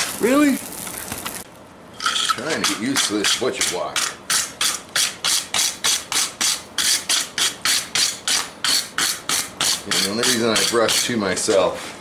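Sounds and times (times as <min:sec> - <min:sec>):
wire brush scrubbing hot steel: 0:02.0 - 0:11.3.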